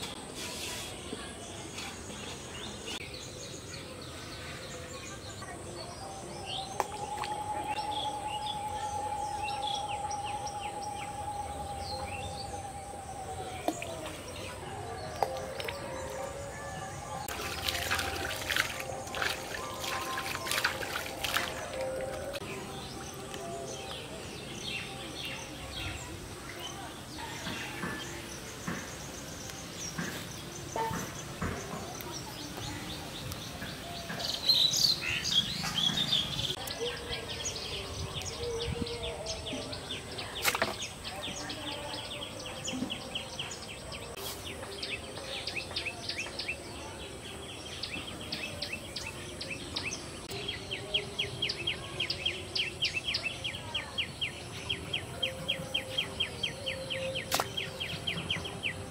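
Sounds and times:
birds chirping: 0:01.0 - 0:58.9
water splashing and dripping: 0:06.7 - 0:07.8, 0:13.5 - 0:16.4, 0:17.1 - 0:24.0, 0:40.3 - 0:41.0, 0:57.2 - 0:58.3.

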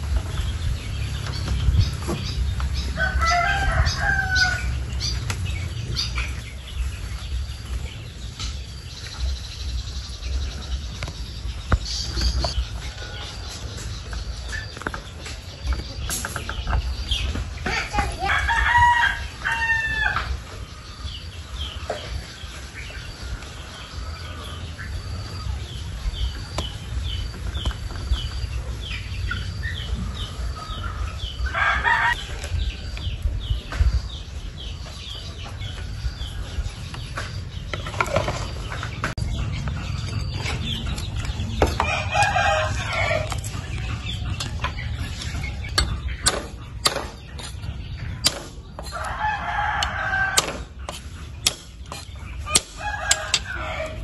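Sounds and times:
chickens clucking: 0:00.0 - 0:54.0
roosters crowing: 0:00.0 - 0:54.0
low rumble: 0:32.2 - 0:48.8.

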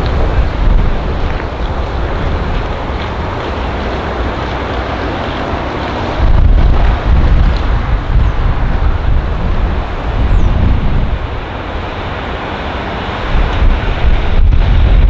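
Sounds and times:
diesel locomotive engine rumbling: 0:00.0 - 0:15.0
wind buffeting microphone: 0:00.0 - 0:15.0.

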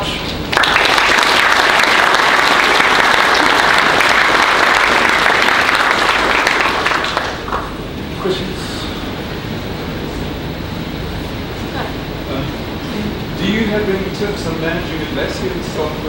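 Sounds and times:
audience applauding: 0:00.5 - 0:07.8.

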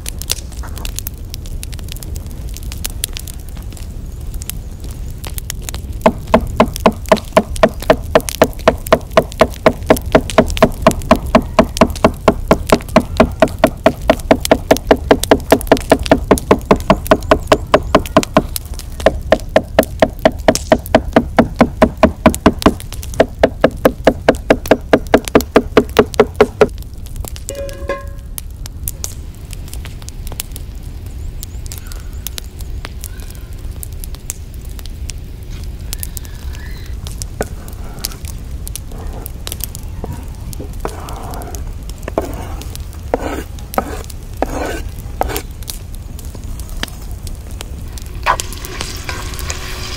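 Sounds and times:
knife chopping on wooden board: 0:19.1 - 0:26.7, 0:43.2 - 0:45.4.

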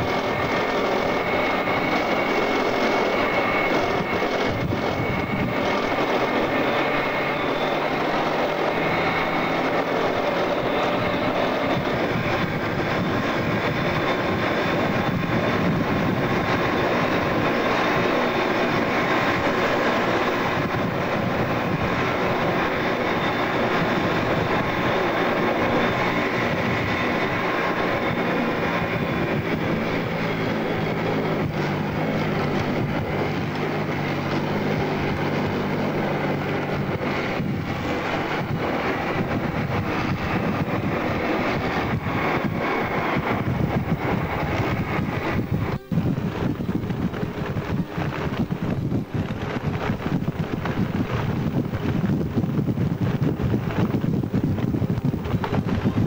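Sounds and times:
armoured vehicle engine drone: 0:00.0 - 0:56.0
high whine: 0:00.0 - 0:56.0.

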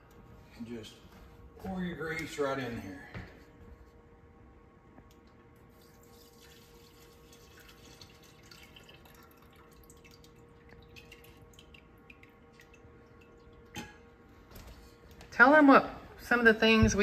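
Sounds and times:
grease dripping into container: 0:05.0 - 0:14.3.

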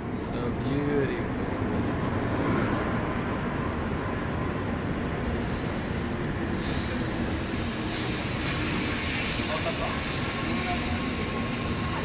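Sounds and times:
train cars rumbling past: 0:00.0 - 0:12.0
bright hiss: 0:06.5 - 0:12.0.

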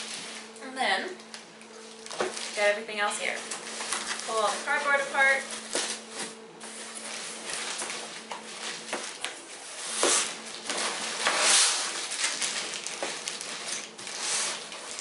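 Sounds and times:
plastic wrap crinkling: 0:01.2 - 0:15.0
box scraping on wooden table: 0:09.8 - 0:12.0.

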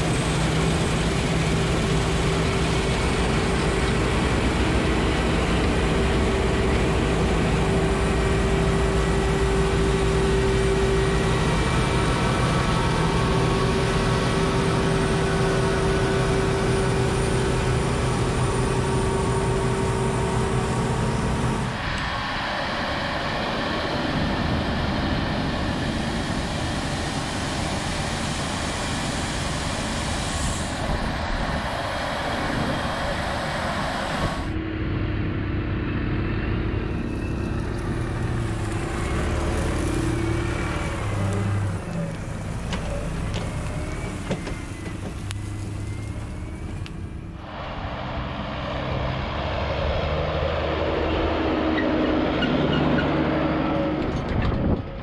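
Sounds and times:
low engine hum: 0:00.0 - 0:55.0
tractor driving up: 0:00.0 - 0:55.0
combine harvester threshing: 0:37.0 - 0:55.0.

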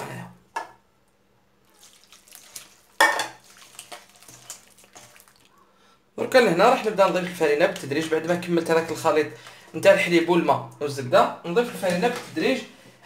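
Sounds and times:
liquid pouring: 0:01.6 - 0:05.7, 0:06.3 - 0:10.0
hand squishing wet dough: 0:01.6 - 0:10.0.

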